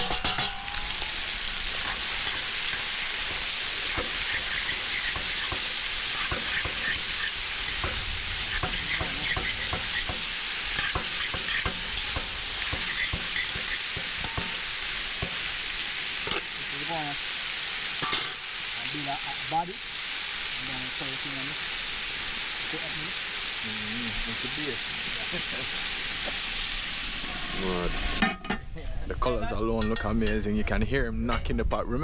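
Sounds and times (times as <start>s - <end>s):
sharp fire pops: 0.0s - 15.6s
wood fire crackling and hissing: 0.0s - 31.0s.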